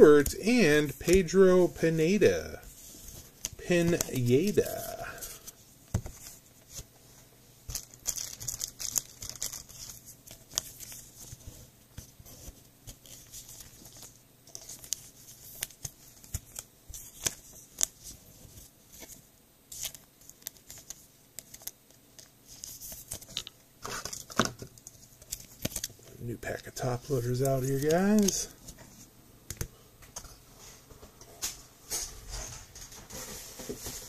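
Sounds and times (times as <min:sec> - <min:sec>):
plastic sleeves crinkling: 0:02.1 - 0:06.8, 0:07.7 - 0:11.5, 0:12.4 - 0:28.7.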